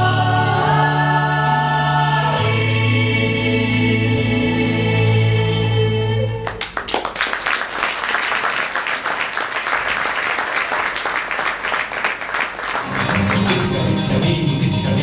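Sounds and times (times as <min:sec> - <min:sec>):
choir singing a chord: 0:00.0 - 0:06.4
audience applauding: 0:06.5 - 0:14.0.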